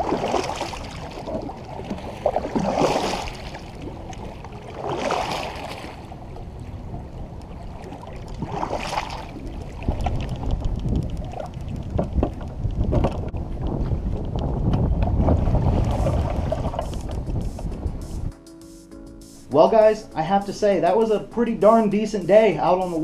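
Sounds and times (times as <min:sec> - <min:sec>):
kayak paddle splashing through water: 0:00.0 - 0:17.7.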